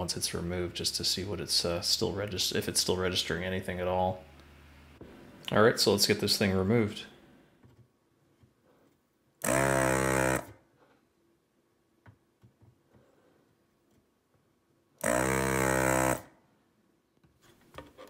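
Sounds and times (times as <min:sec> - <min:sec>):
desoldering pump buzz and suction: 0:09.4 - 0:10.5, 0:15.0 - 0:16.2.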